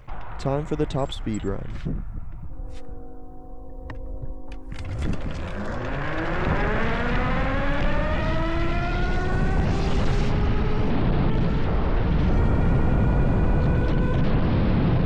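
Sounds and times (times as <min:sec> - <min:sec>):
wind rumble on microphone: 0:00.0 - 0:02.9, 0:03.9 - 0:15.0
electric hub motor whining: 0:04.7 - 0:14.5.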